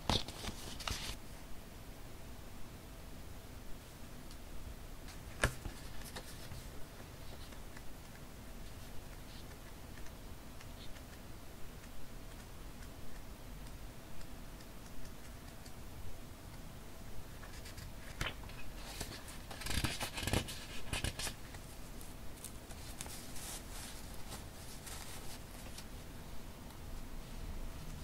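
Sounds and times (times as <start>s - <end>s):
paper rustling: 17.4s - 25.9s.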